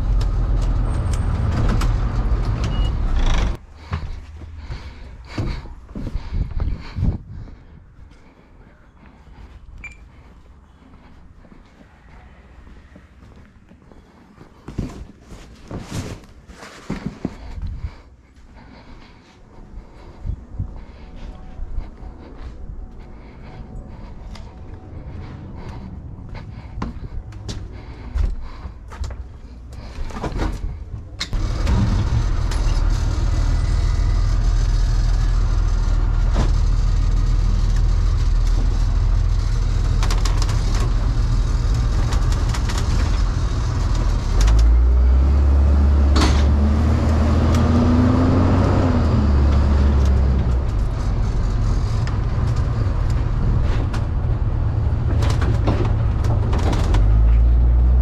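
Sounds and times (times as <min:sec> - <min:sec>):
van engine rumbling: 0:00.0 - 0:58.0
rattles: 0:30.0 - 0:44.8.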